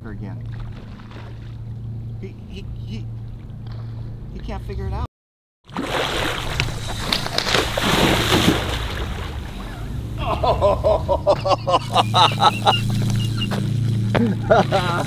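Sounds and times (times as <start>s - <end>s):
fish splashing in water: 0.5s - 1.7s, 5.7s - 10.2s
excited voices: 9.6s - 13.6s.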